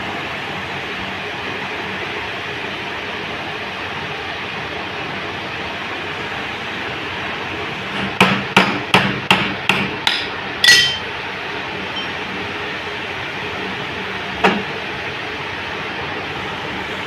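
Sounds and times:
metal-on-metal knocks: 9.3 - 11.1
ringing metallic clink: 10.6 - 11.1.

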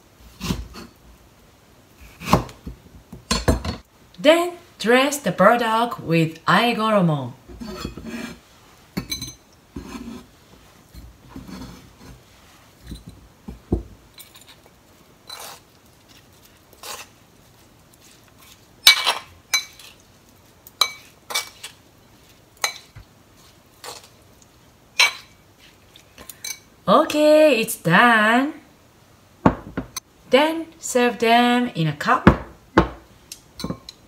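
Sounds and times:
metal spoon clinking in mortar: 33.6 - 34.0.

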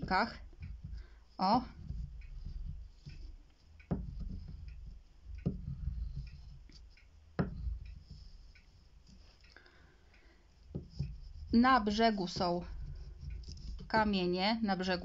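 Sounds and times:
candle rubbing on paper: 1.4 - 3.4, 10.8 - 14.1
candle knocking on paper: 1.7 - 3.3, 3.9 - 6.6, 10.7 - 14.0.

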